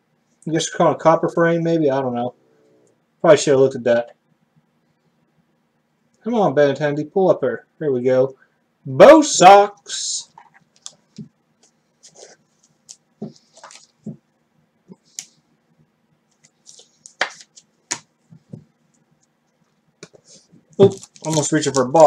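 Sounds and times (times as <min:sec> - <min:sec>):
cards rustling: 0:10.4 - 0:14.1, 0:16.3 - 0:18.6, 0:20.0 - 0:22.0.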